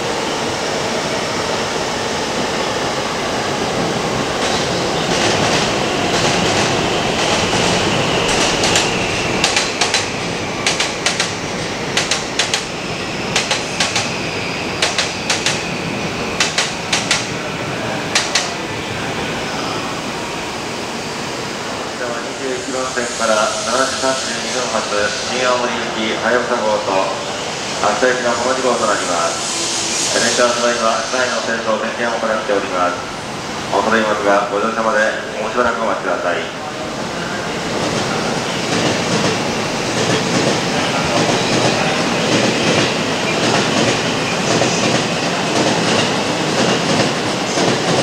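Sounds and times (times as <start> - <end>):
train rumbling: 0.0 - 48.0.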